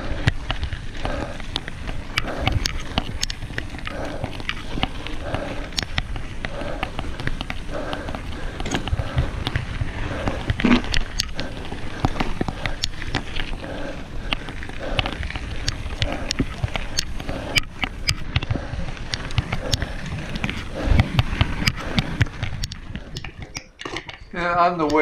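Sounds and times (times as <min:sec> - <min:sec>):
bike clicks and rattling knocks: 0:00.0 - 0:25.0
tyres crunching on gravel: 0:00.0 - 0:25.0.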